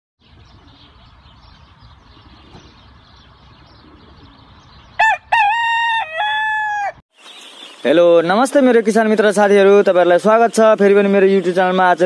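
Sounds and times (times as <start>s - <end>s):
faint outdoor background: 0.2s - 12.0s
rooster crowing: 5.0s - 7.0s.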